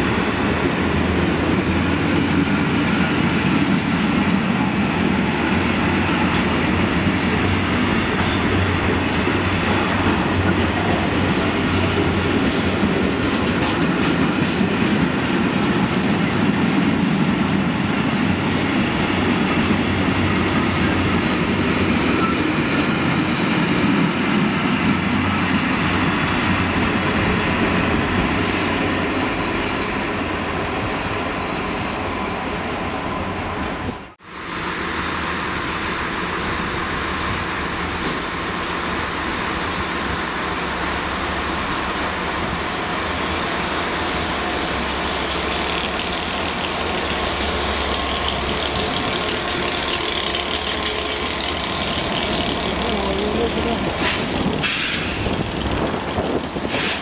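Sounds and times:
freight train rolling past: 0.0 - 57.0
wheels clattering over rail joints: 3.4 - 18.7, 43.1 - 57.0.

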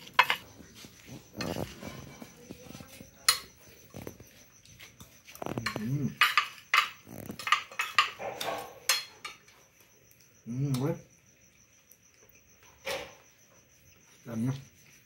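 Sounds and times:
cutlery clinking on glass plate: 0.0 - 0.5, 5.4 - 9.6.

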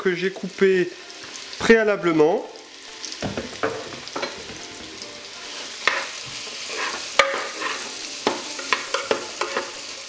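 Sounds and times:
apples sizzling in butter: 0.0 - 10.0
spatula scraping bowl: 5.8 - 7.9.

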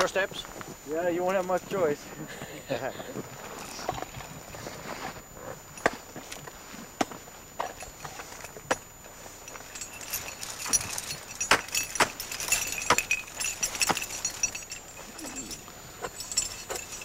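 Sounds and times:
metal climbing hardware jingling: 1.0 - 4.4, 7.5 - 17.0.

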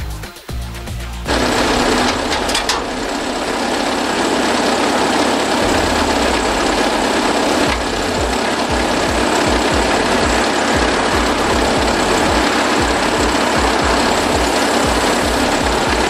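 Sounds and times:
loader engine idling: 0.0 - 16.0.

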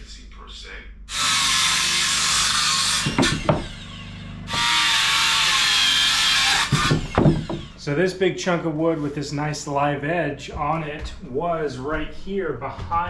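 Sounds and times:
circular saw cutting wood: 1.1 - 8.2
wood knocking: 3.0 - 3.8, 6.7 - 7.8.

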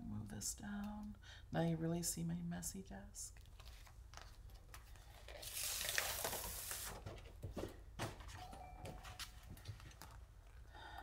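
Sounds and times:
plastic mat rustling over paper: 3.4 - 10.3.

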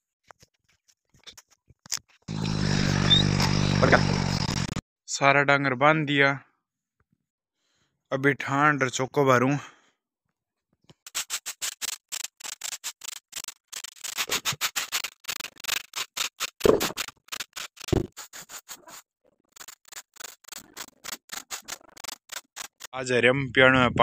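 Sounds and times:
broom sweeping floor: 11.1 - 13.2, 16.0 - 19.0.

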